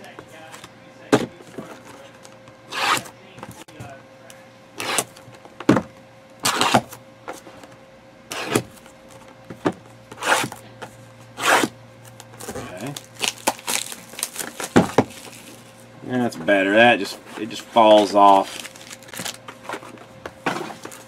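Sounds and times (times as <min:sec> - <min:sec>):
boxes scraping on a desk: 0:02.7 - 0:03.1, 0:10.2 - 0:10.6, 0:11.4 - 0:11.7, 0:19.6 - 0:21.0.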